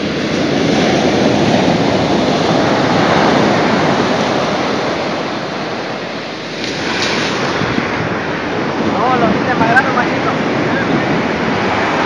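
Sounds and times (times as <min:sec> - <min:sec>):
ocean surf washing up a beach: 0:00.0 - 0:12.0.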